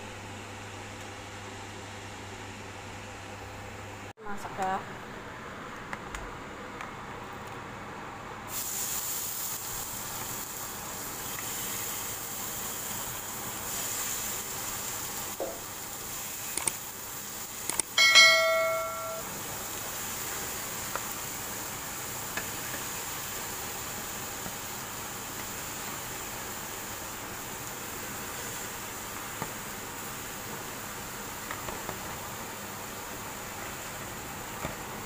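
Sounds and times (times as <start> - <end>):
chicken sizzling in hot oil: 8.5 - 35.0
loud metallic clink: 18.0 - 19.3.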